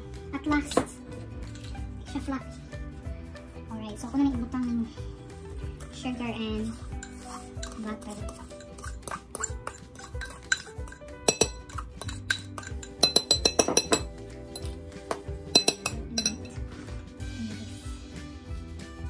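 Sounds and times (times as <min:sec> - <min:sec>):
background music: 0:00.0 - 0:19.0
utensil clinking against mixing bowl: 0:06.7 - 0:16.7.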